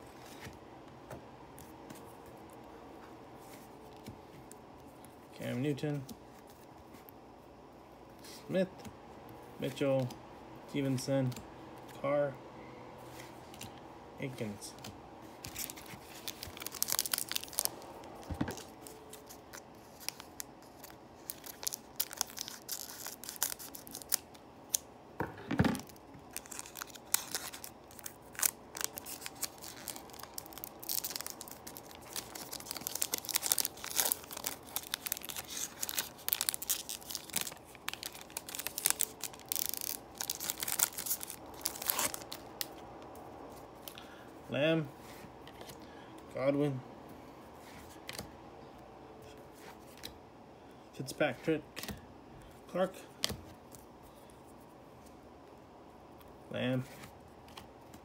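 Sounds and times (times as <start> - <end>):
foil wrapper crinkling and tearing: 15.5 - 17.8, 18.5 - 24.8, 25.8 - 42.8.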